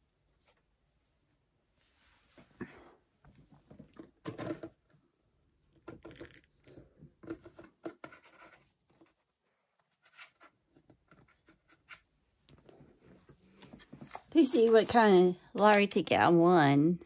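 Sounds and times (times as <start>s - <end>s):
scratchy rustling of handled objects: 6.1s - 15.8s.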